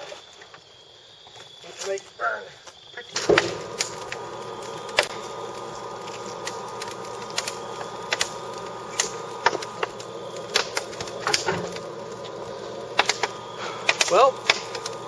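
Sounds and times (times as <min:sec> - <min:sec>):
wood fire crackling and popping: 0:00.0 - 0:15.0
blower hum: 0:03.1 - 0:15.0.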